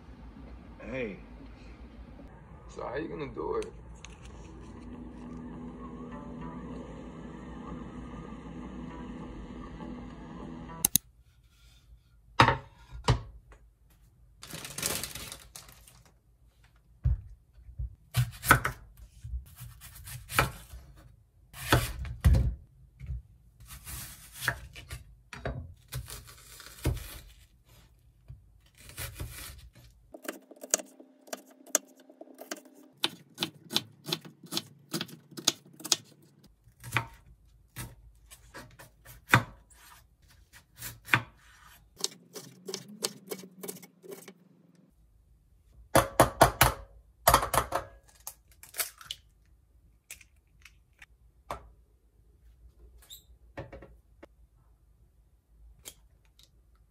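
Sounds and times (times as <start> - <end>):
knife slicing onion: 18.1 - 22.2, 23.6 - 25.0, 28.6 - 44.4.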